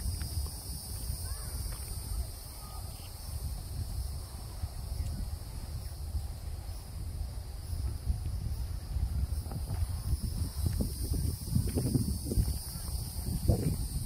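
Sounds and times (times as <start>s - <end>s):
insect chorus drone: 0.0s - 14.0s
wind rumble on microphone: 0.0s - 14.0s.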